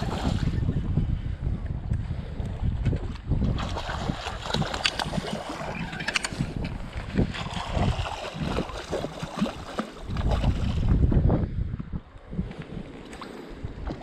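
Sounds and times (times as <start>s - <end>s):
water noise: 0.0s - 14.0s
wind buffeting microphone: 0.0s - 14.0s
short clicks and splashy crackles: 3.5s - 10.4s.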